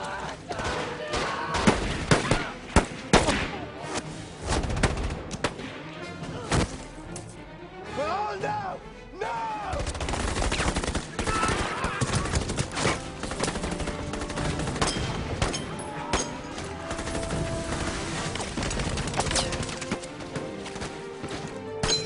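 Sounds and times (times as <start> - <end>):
rapid gunfire: 9.8 - 15.5, 16.8 - 19.9.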